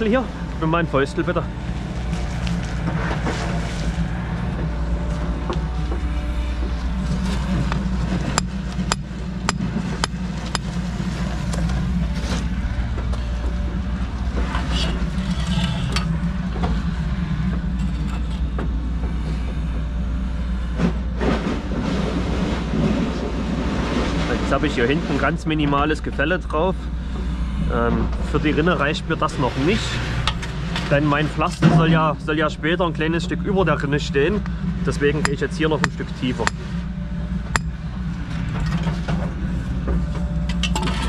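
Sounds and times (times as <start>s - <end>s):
low engine rumble: 0.0s - 41.0s.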